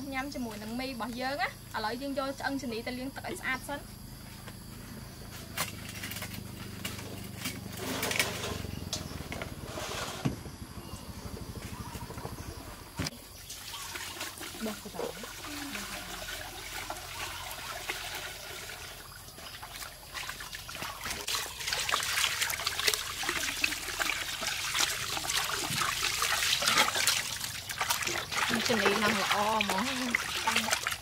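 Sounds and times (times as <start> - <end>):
water pouring into steel basin: 13.4 - 31.0
hands scrubbing in splashing water: 13.7 - 31.0.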